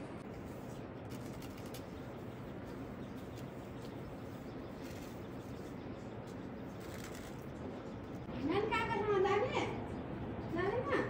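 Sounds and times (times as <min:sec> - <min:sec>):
outdoor background hiss: 0:00.0 - 0:11.0
faint bird chirps: 0:00.7 - 0:08.3.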